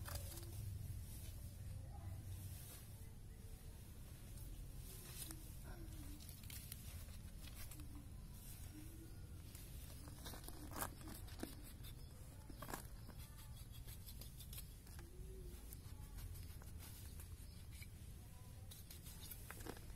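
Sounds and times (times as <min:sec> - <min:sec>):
low steady rumble: 0:00.0 - 0:13.1.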